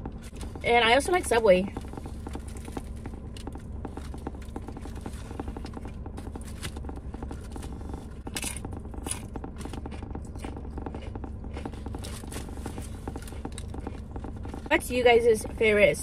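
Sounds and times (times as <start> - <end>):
wet chewing: 0.0 - 15.6
low steady hum: 0.0 - 16.0.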